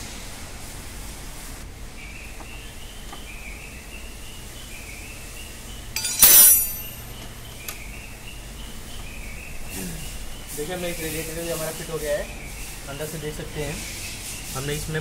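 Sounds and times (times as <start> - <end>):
loud metallic clink: 6.0 - 7.2.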